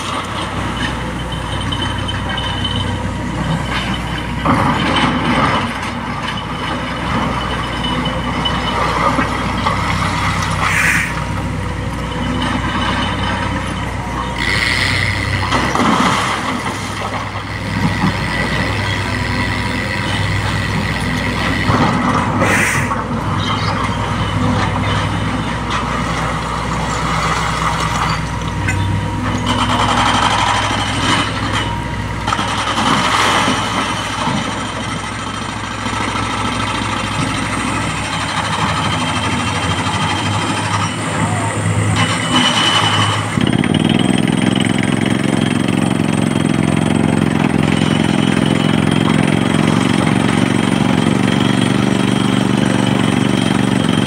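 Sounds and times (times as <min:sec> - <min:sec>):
excavator diesel engine running: 0:00.0 - 0:54.0
short hisses: 0:10.6 - 0:11.2, 0:22.4 - 0:23.0.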